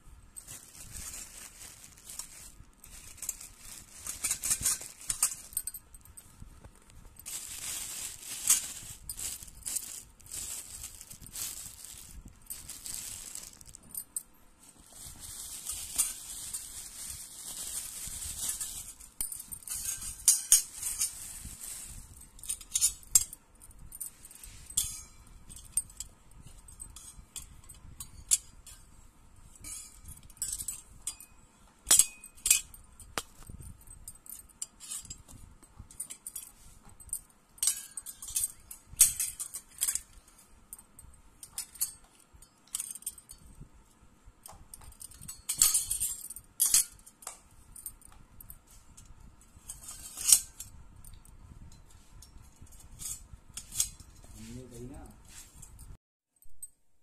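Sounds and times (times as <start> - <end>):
plastic wrapping crinkling: 0.4 - 22.6.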